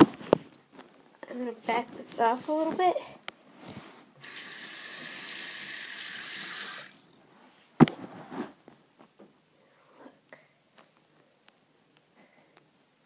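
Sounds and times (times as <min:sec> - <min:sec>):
faucet running into sink: 0:04.2 - 0:07.3.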